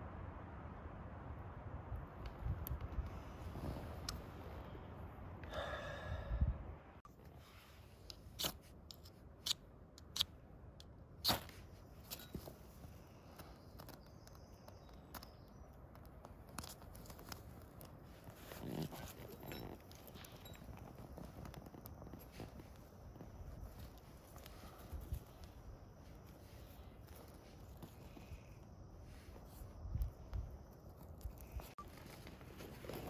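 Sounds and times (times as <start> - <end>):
kindling cracking and scraping: 11.2 - 25.6.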